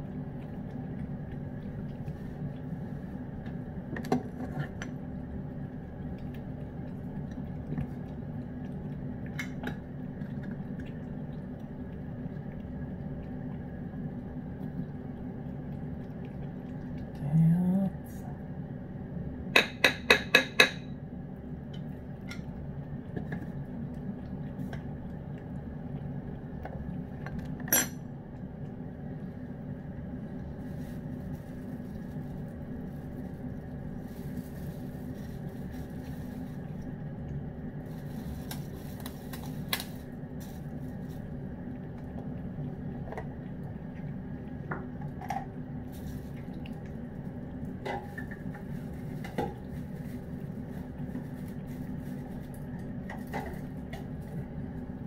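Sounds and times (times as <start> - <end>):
steady low hum: 0.0 - 55.0
clinks against ceramic bowl: 27.7 - 28.0.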